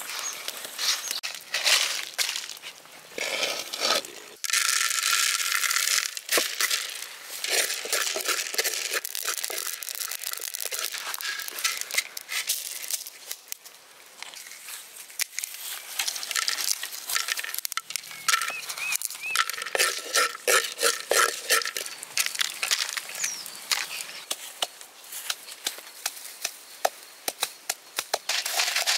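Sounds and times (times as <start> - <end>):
dry crunching handling sounds: 0.0 - 26.6.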